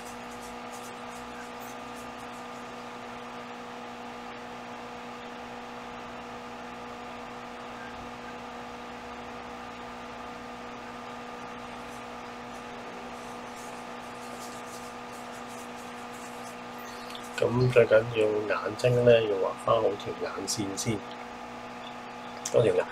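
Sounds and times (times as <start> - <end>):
steady electrical hum: 0.0 - 22.9.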